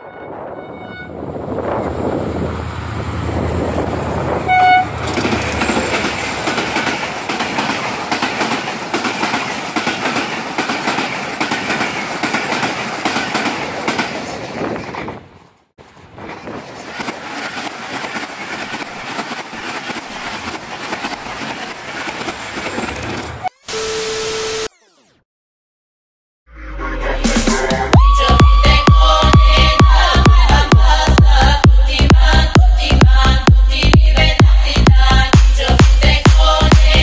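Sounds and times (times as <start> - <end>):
train horn toot: 0.0 - 2.0, 4.3 - 5.2
train roar: 0.0 - 23.5, 27.0 - 34.4
train wheels clattering over rails: 3.6 - 23.4.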